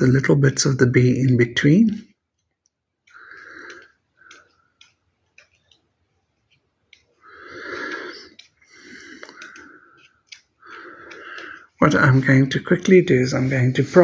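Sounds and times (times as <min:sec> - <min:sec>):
soft breathy sounds: 0:03.0 - 0:05.7, 0:06.4 - 0:12.1
scissors snipping paper: 0:08.1 - 0:12.9.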